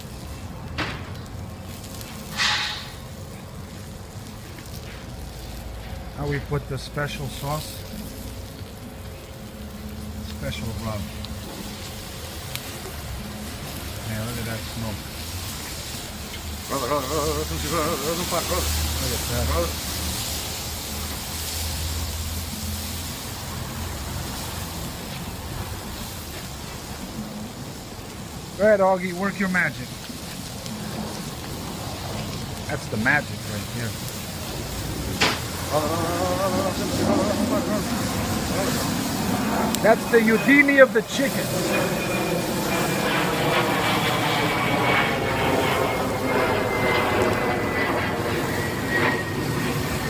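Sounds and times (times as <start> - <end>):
low rumble of grill: 0.0 - 50.0
low rumble: 33.4 - 40.5.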